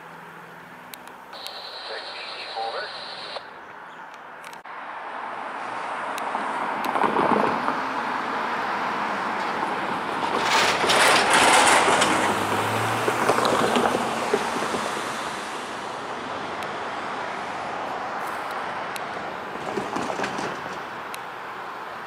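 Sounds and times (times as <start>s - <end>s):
road vehicle passing: 0.0s - 22.0s.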